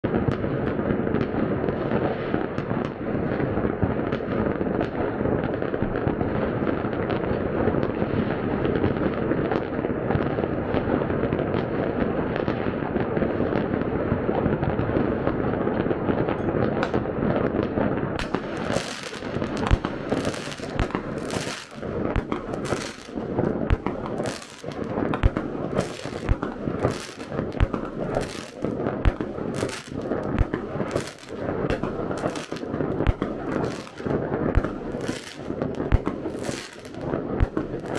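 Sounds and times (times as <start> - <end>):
fireworks bangs and crackling: 0.0 - 37.9
close firework bangs: 16.3 - 37.9.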